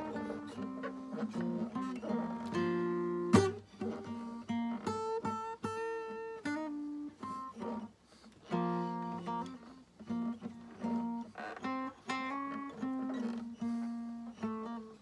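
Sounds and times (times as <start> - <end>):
acoustic guitar playing: 0.0 - 15.0.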